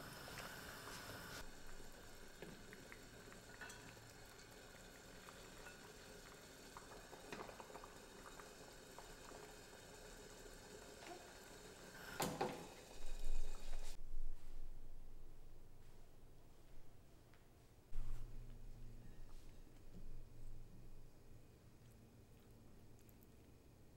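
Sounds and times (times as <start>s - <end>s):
broth bubbling in a pot: 0.0s - 14.0s.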